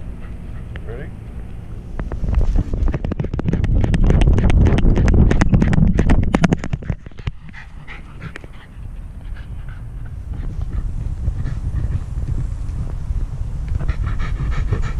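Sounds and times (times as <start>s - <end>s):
dog panting: 0.0s - 1.1s, 3.2s - 13.0s, 13.6s - 14.9s
heavy low rumble: 0.0s - 14.9s
camera rattling on harness: 2.0s - 7.6s.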